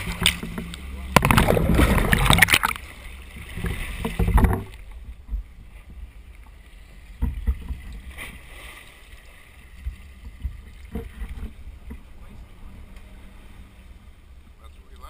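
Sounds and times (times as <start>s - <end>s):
underwater rushing noise: 0.0s - 14.6s
low rumble of boat: 0.0s - 15.0s
dull knocks: 7.2s - 7.9s.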